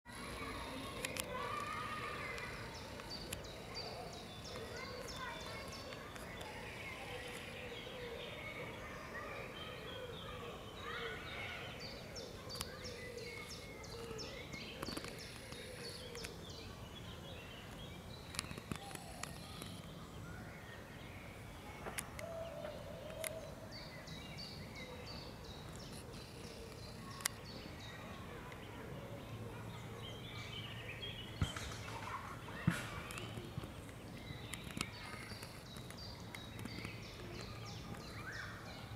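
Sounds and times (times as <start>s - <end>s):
outdoor background noise: 0.0s - 38.9s
sharp clicks: 0.8s - 3.6s, 18.2s - 19.9s.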